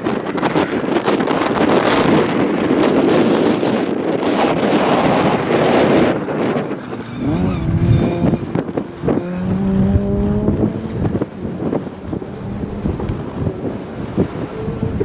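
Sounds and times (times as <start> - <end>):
rally car engine revving: 5.0 - 15.0.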